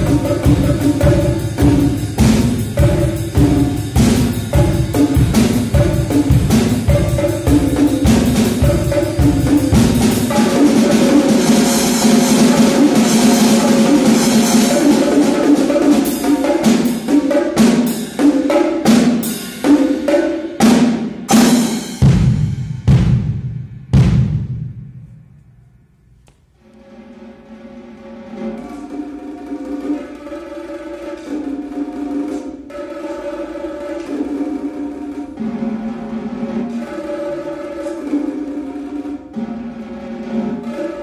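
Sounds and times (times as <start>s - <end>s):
drums and cymbals played with sticks: 0.0s - 25.0s, 26.7s - 41.0s.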